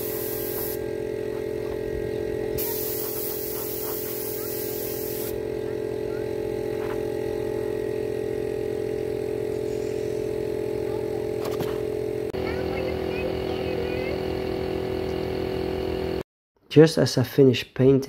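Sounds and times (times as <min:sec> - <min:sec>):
paint spray gun hissing: 0:00.0 - 0:12.9
air compressors humming: 0:00.0 - 0:16.2.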